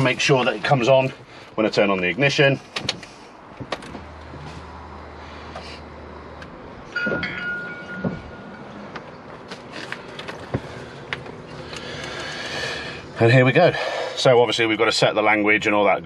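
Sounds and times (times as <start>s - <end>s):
electronic chime: 7.0s - 8.8s.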